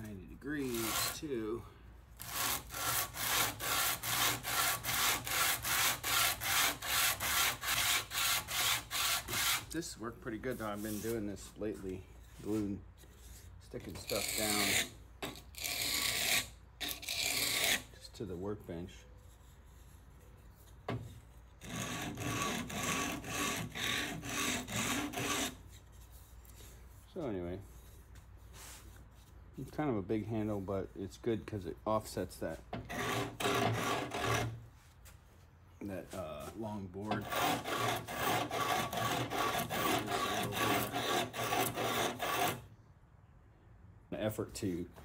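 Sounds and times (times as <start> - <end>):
sanding wood on sandpaper: 0.6 - 1.4, 2.2 - 9.8, 10.4 - 11.6, 13.8 - 14.9, 15.6 - 17.9, 21.6 - 26.1, 32.9 - 34.6, 36.1 - 42.6.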